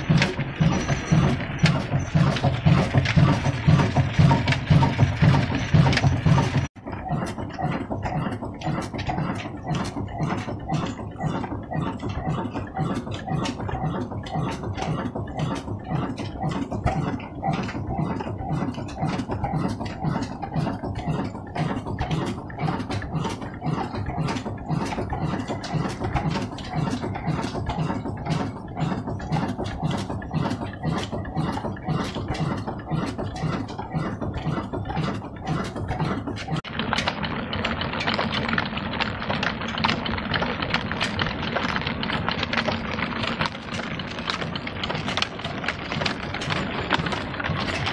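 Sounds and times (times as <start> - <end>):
diesel engine exhaust thudding: 0.0 - 36.7.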